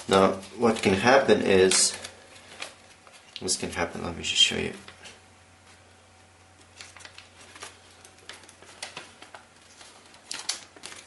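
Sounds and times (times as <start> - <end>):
paper rustling and crackling: 0.0 - 3.7, 6.4 - 11.0
low steady hum: 0.0 - 11.0.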